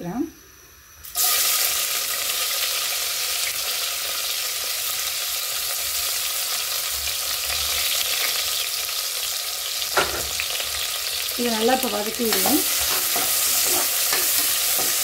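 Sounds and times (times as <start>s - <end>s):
onions sizzling in hot oil: 1.0s - 15.0s.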